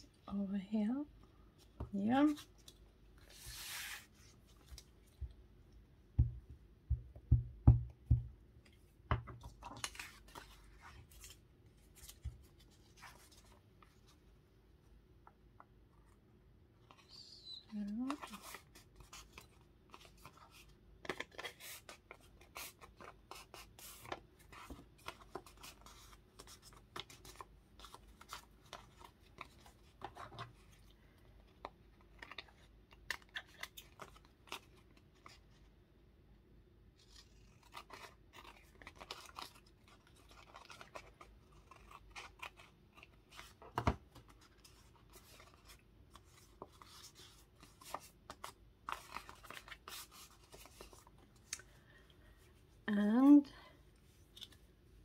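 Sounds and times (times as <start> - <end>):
paper rustling: 2.2 - 5.3.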